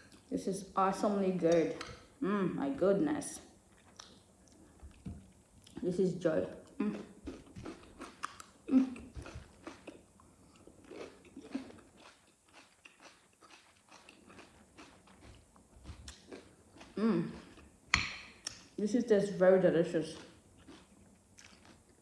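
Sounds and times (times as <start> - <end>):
person chewing food: 3.6 - 5.8, 6.6 - 18.7, 20.1 - 22.0.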